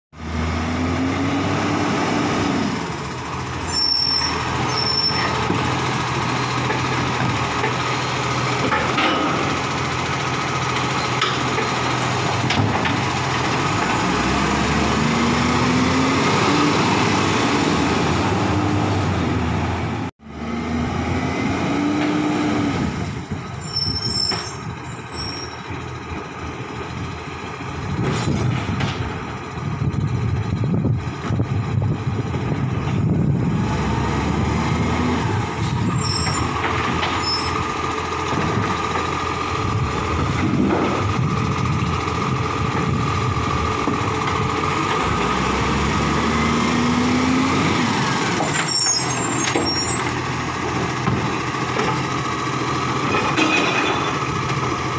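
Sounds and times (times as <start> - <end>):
diesel truck engine revving: 0.2 - 25.2, 25.9 - 53.4
air brake squeals: 3.4 - 5.4, 23.4 - 25.7, 35.6 - 37.6, 48.3 - 50.1.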